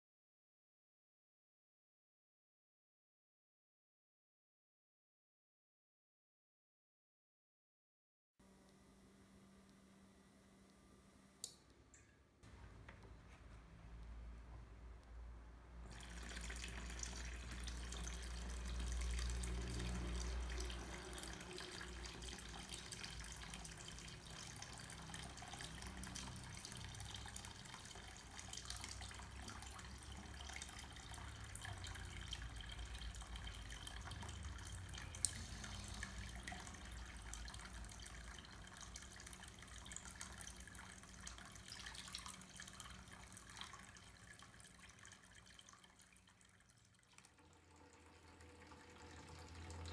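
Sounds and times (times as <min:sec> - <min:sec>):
water splashing into basin: 0:15.9 - 0:49.9.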